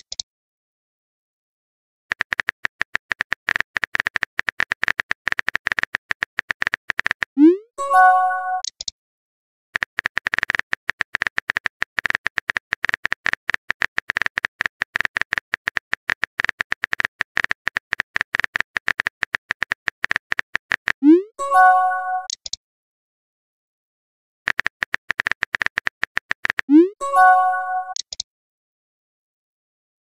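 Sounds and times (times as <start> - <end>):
keyboard typing clicks: 2.1 - 7.5, 8.3 - 8.9, 9.8 - 22.6, 24.5 - 28.3
message notification chime: 7.5 - 8.6, 21.0 - 22.3, 26.7 - 28.0.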